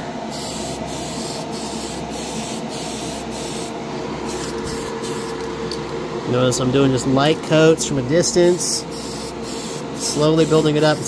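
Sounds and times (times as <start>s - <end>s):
aerosol can spraying: 0.3s - 3.7s, 4.3s - 5.4s, 8.8s - 11.0s.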